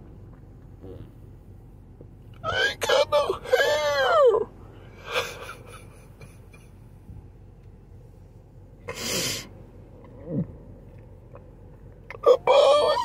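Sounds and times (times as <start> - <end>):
man crying: 2.5 - 4.4.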